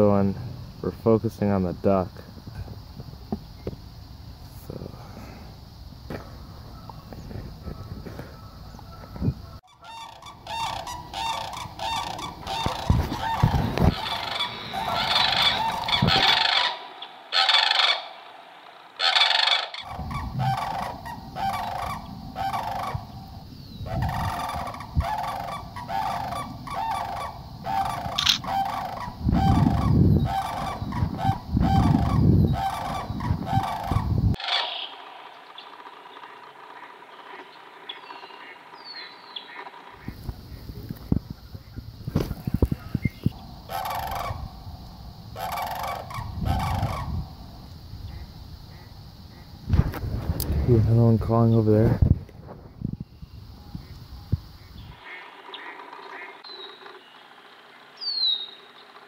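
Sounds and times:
geese honking: 7.7 - 40.2, 43.7 - 44.5, 45.3 - 47.2, 54.9 - 57.0.

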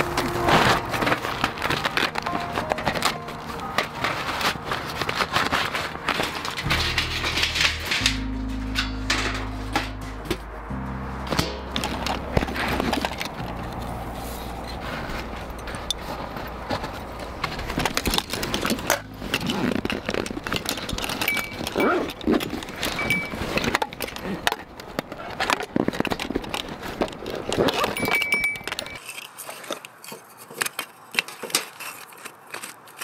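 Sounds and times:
metal gear clinking and jangling: 14.6 - 24.6, 25.2 - 29.4.

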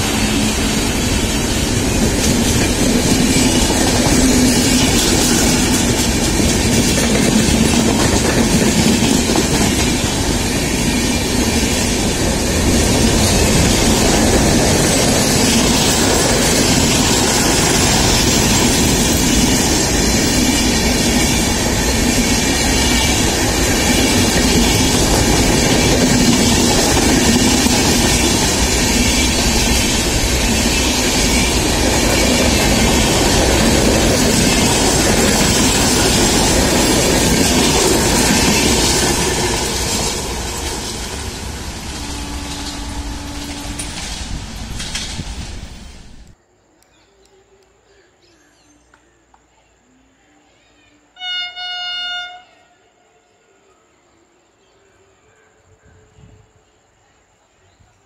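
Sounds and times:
train wheels running on rails: 0.0 - 46.4.

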